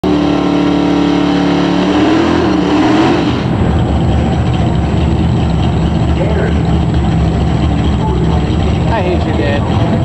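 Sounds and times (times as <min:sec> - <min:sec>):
car engine revving high: 0:00.0 - 0:10.0
lumpy engine idle: 0:03.4 - 0:10.0.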